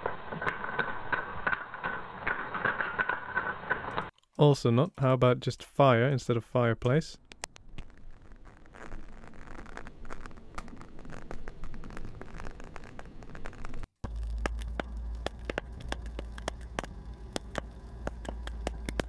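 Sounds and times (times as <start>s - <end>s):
fire crackling: 0.0s - 4.2s, 6.8s - 19.0s
low rumble: 14.0s - 19.0s.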